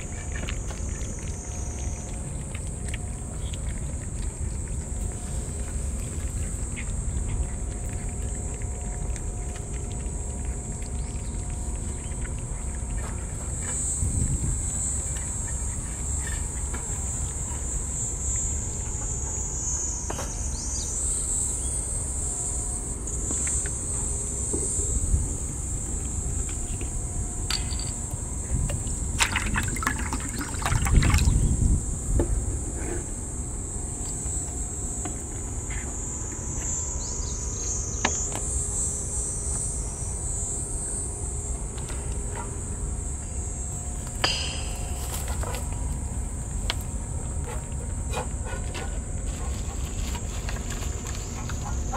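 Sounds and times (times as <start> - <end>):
insects droning: 0.0 - 51.9
insect chorus shrilling: 35.7 - 41.5.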